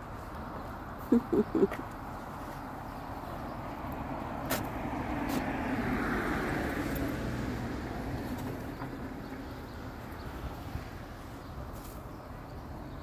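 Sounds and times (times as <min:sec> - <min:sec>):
car passing: 0:02.1 - 0:11.5.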